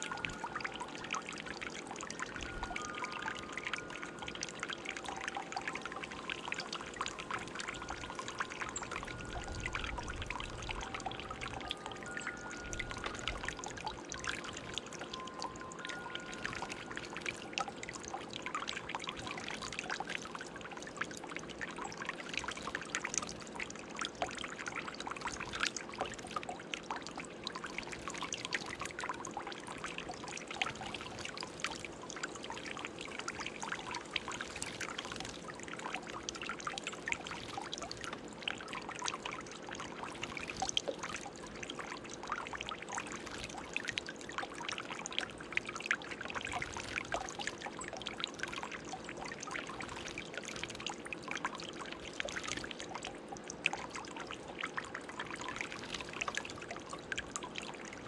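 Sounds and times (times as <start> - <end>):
water trickling in fountain: 0.0 - 58.0.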